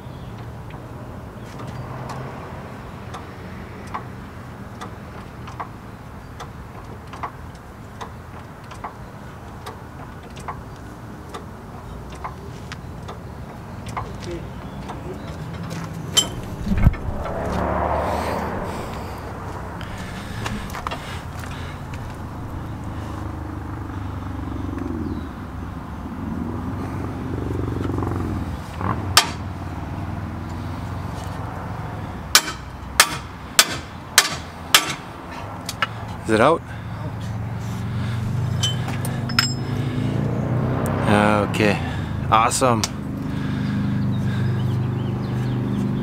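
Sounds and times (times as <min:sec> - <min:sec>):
low motor hum: 0:14.5 - 0:31.0
hammer strike on metal: 0:32.4 - 0:35.0.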